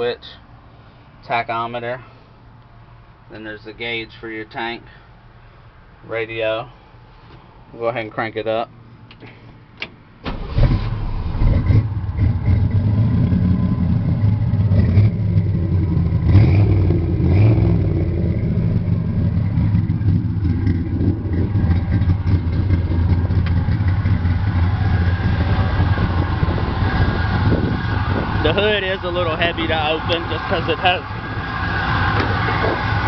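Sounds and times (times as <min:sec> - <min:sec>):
car engine starting: 0:09.2 - 0:33.0
engine revving: 0:10.3 - 0:33.0
engine idling: 0:17.9 - 0:33.0.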